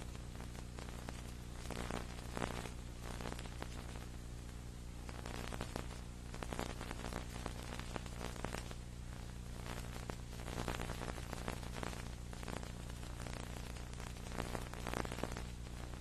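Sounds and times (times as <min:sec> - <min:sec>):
crackling static: 0:00.0 - 0:16.0
low electrical hum: 0:00.0 - 0:16.0.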